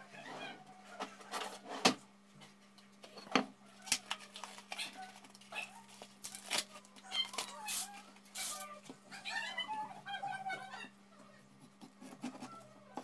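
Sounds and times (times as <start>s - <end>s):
plastic clicks and crinkles: 3.8s - 7.6s.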